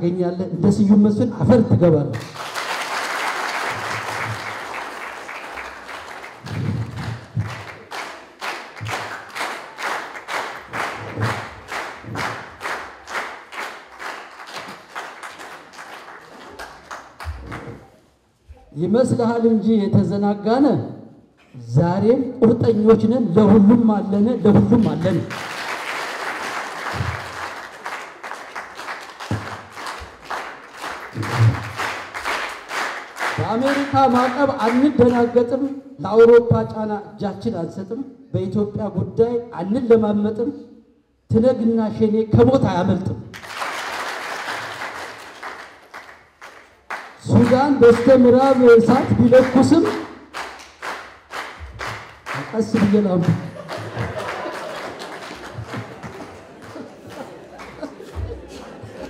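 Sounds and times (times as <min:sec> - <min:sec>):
rhythmic clapping in unison: 0:02.1 - 0:18.0, 0:24.4 - 0:35.6, 0:43.3 - 0:59.0
audience applause: 0:02.2 - 0:17.8, 0:25.0 - 0:34.8, 0:43.4 - 0:47.7, 0:50.3 - 0:59.0.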